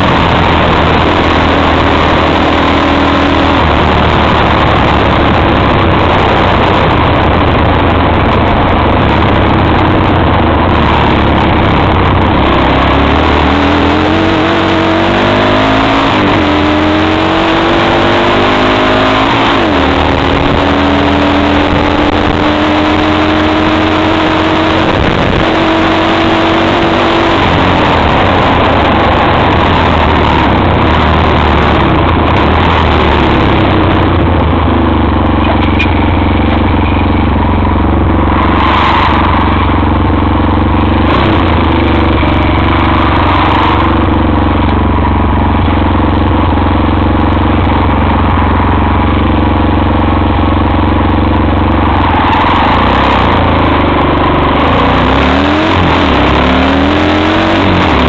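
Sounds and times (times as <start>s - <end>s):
quad engine revving: 0.0s - 58.0s
tyres on gravel track: 0.0s - 58.0s
wind rushing: 19.0s - 34.6s.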